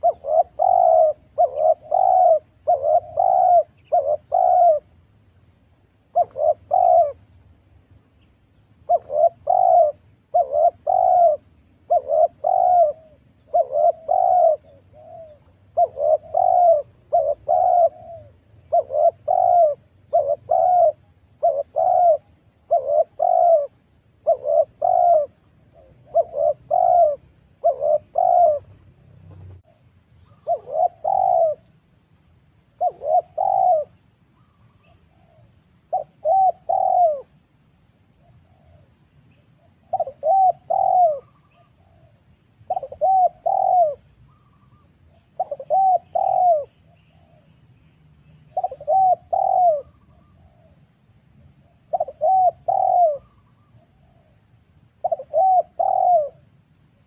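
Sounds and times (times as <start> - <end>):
dove cooing: 0.0 - 5.0, 6.0 - 7.6, 8.8 - 32.0, 32.6 - 57.0.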